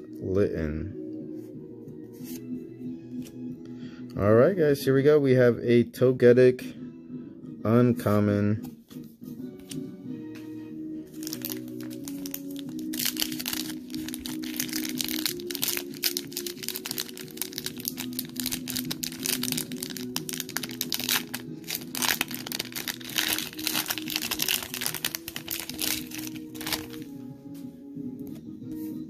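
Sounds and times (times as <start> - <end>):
background music: 0.0 - 29.0
foil wrapper crinkling: 11.2 - 27.1.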